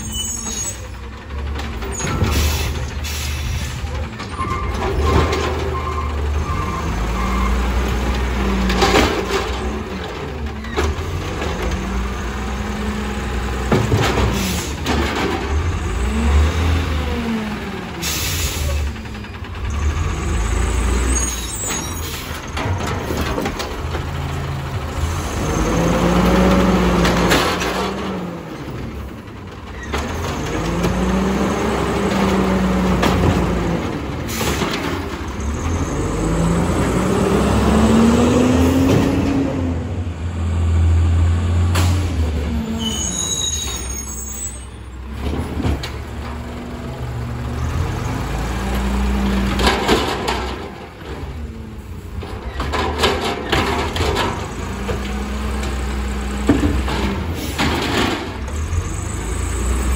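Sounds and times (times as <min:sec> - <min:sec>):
truck engine revving: 0:01.1 - 0:43.2, 0:45.0 - 0:59.9
knocks from arm and carts: 0:56.4 - 0:58.6.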